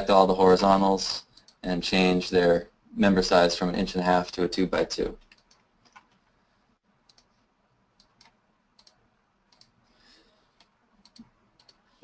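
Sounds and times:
computer mouse clicks: 1.3 - 1.6, 5.2 - 6.3, 7.0 - 7.4, 8.0 - 9.8, 10.5 - 11.9.

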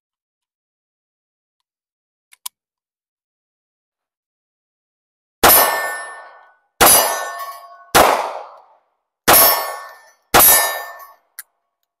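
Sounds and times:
ringing after gunshot: 5.4 - 8.6, 9.3 - 11.2.

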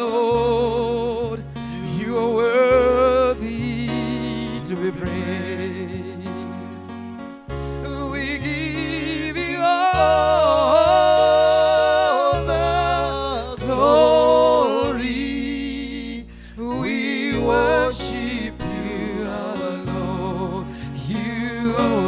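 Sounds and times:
sustained low chords: 0.4 - 22.0
person singing with vibrato: 7.8 - 22.0.

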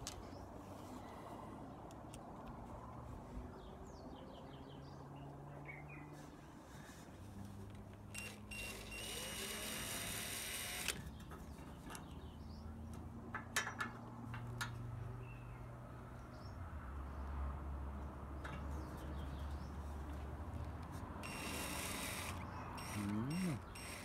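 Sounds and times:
cordless drill motor whirring: 8.1 - 11.0, 21.2 - 24.0.

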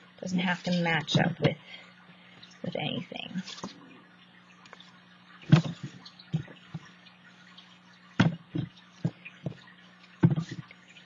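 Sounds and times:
paper tapping and rustling: 5.5 - 6.9, 8.2 - 10.7.

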